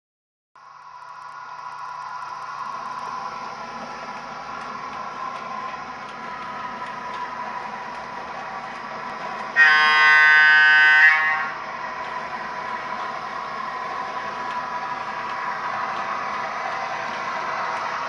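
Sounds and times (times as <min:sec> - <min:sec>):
model locomotive humming: 0:00.6 - 0:18.0
train horn blast: 0:09.5 - 0:11.6.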